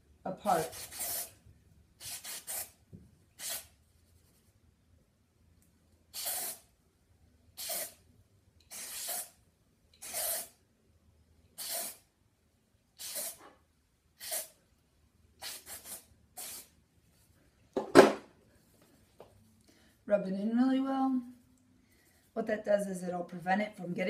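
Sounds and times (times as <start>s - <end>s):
aerosol spray hissing bursts: 0.6s - 1.4s, 2.0s - 2.8s, 3.4s - 3.7s, 6.1s - 6.7s, 7.6s - 8.0s, 8.7s - 9.4s, 10.0s - 10.6s, 11.6s - 12.0s, 13.0s - 13.4s, 14.2s - 14.6s, 15.4s - 16.7s.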